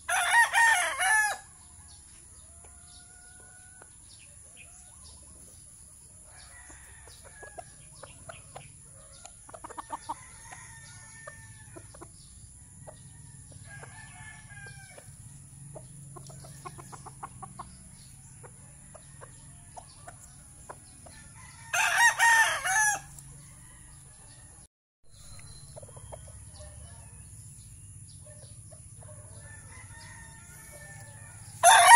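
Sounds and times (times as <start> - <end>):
loud rooster crow: 0.0 - 1.7, 6.3 - 7.6, 9.8 - 11.8, 13.0 - 15.1, 21.1 - 24.6, 29.3 - 31.9.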